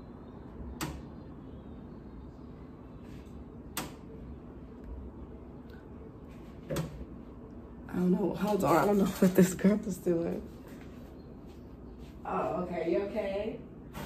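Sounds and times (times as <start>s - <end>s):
faint room hum: 0.0s - 14.0s.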